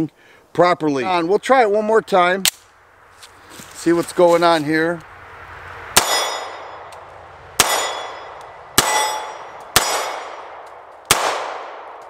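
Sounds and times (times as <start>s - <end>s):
pistol shots echoing: 6.0s - 6.9s, 7.6s - 12.0s.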